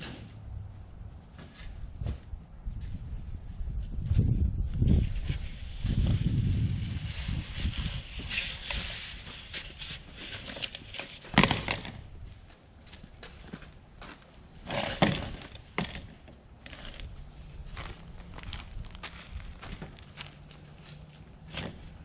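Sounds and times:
plastic pipe dragged over grass: 0:04.9 - 0:11.4.

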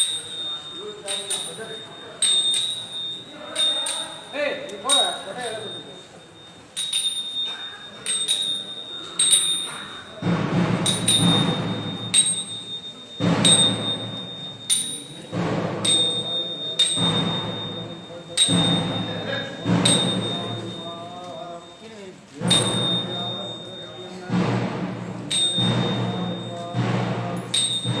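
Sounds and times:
metal bell struck: 0:00.0 - 0:21.8, 0:22.4 - 0:28.0
low drumming: 0:10.2 - 0:21.2, 0:22.4 - 0:28.0.

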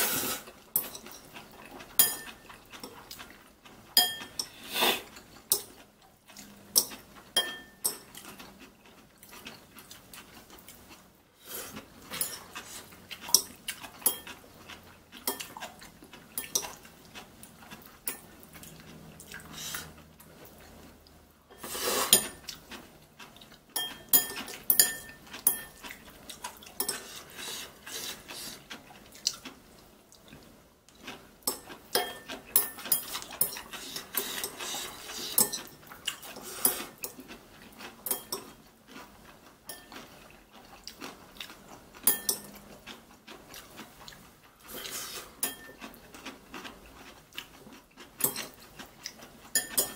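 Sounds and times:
chopsticks clinking on ceramic bowls: 0:00.8 - 0:01.4, 0:02.0 - 0:03.0, 0:04.0 - 0:04.6, 0:06.8 - 0:08.4, 0:12.1 - 0:12.6, 0:13.2 - 0:14.4, 0:23.8 - 0:25.9, 0:26.8 - 0:27.1, 0:31.5 - 0:33.6, 0:35.3 - 0:35.8, 0:38.1 - 0:38.6, 0:39.7 - 0:40.1, 0:42.0 - 0:42.6, 0:45.4 - 0:45.9, 0:49.6 - 0:49.9.

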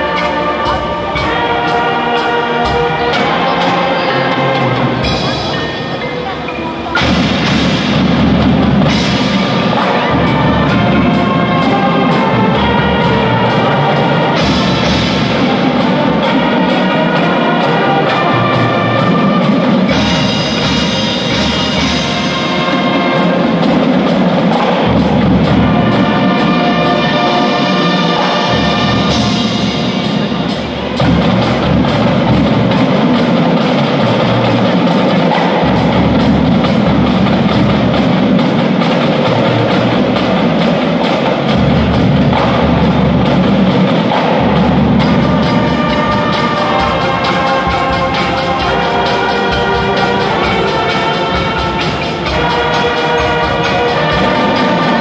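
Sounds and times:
marimbas and keyboard: 0:00.0 - 0:12.5
brass chords: 0:00.0 - 0:55.0
marching drums and bass drum: 0:00.0 - 0:55.0.

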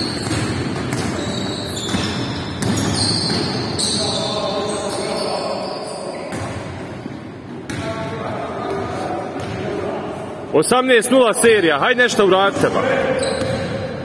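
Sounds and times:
sneakers squeaking: 0:00.0 - 0:09.7, 0:12.9 - 0:14.0
voices echoing in a hall: 0:00.0 - 0:14.0.

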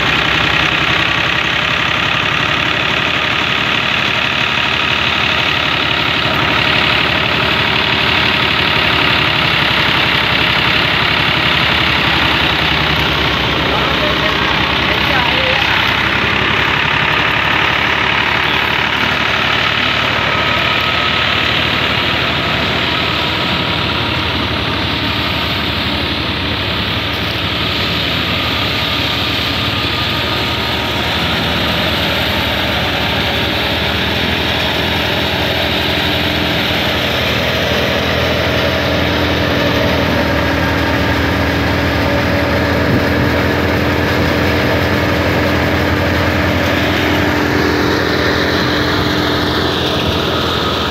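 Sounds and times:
tractor diesel engine under load: 0:00.0 - 0:50.9
wheat thresher running: 0:00.0 - 0:50.9.

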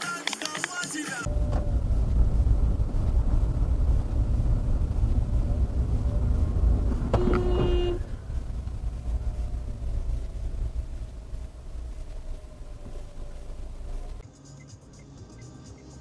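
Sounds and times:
car road and engine rumble: 0:01.2 - 0:15.9
short car horn blast: 0:07.0 - 0:08.2.

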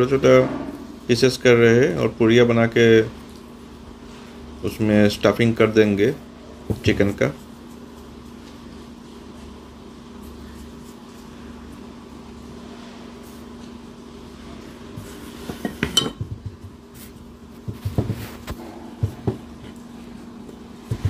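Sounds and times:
steady low hum: 0:00.0 - 0:21.0
dough pressed on wooden board: 0:15.4 - 0:17.0, 0:17.6 - 0:19.8, 0:20.5 - 0:21.0.

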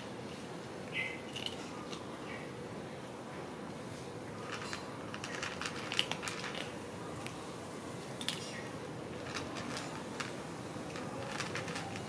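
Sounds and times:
low background noise: 0:00.0 - 0:12.0
cat crunching dry kibble: 0:01.3 - 0:02.1, 0:04.4 - 0:07.4, 0:08.1 - 0:12.0.

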